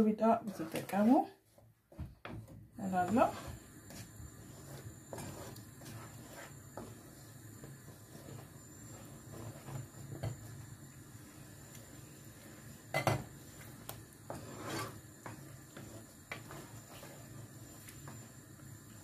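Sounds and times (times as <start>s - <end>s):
wooden spoon scraping a pan: 0.0s - 19.0s
spoon knocking on pan: 12.9s - 13.3s.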